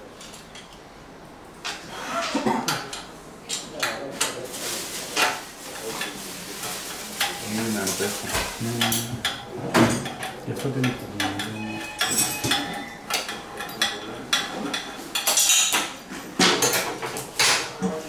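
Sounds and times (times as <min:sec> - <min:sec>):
metal pipes and tools clinking: 0:11.2 - 0:15.9.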